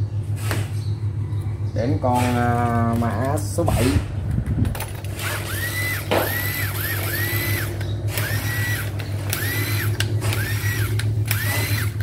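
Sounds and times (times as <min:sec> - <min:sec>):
impact driver motor whining: 0:04.7 - 0:12.0.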